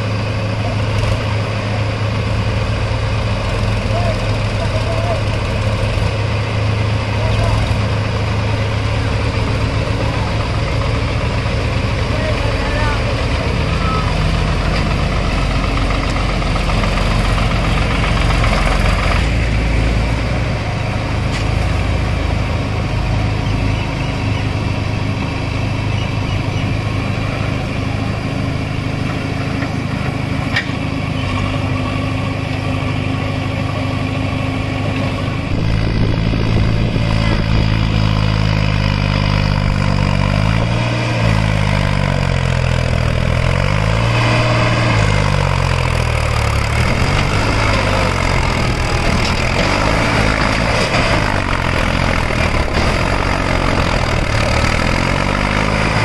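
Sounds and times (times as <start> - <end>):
diesel engines running: 0.0 - 56.0
tractor driving off: 0.0 - 56.0.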